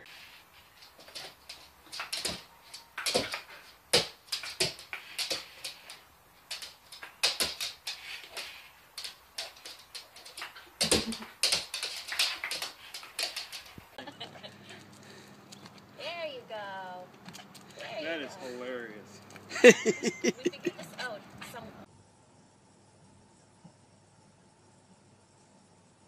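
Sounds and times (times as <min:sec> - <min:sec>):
dog claws clicking on hard floor: 0:00.1 - 0:14.0.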